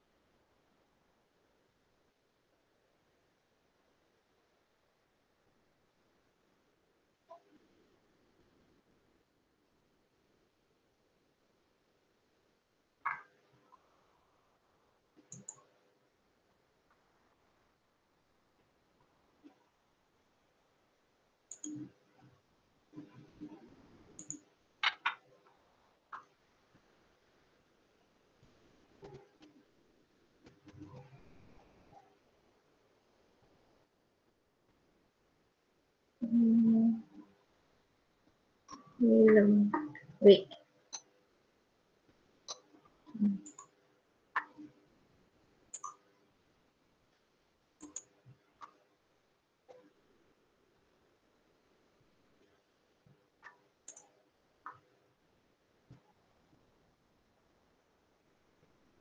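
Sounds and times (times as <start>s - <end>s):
computer mouse clicks: 13.0s - 13.8s, 15.2s - 15.7s, 21.5s - 22.3s, 23.0s - 26.4s, 29.0s - 29.6s, 30.4s - 32.1s, 40.9s - 41.1s, 42.4s - 44.7s, 45.7s - 46.2s, 47.8s - 48.8s, 53.4s - 54.8s.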